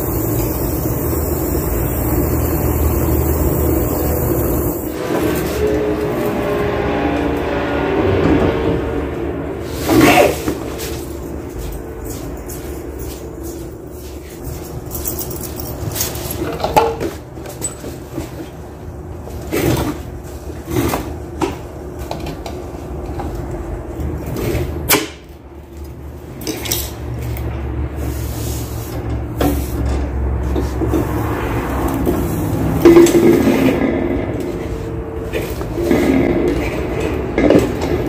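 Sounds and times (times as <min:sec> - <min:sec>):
low hum: 0:00.0 - 0:15.7.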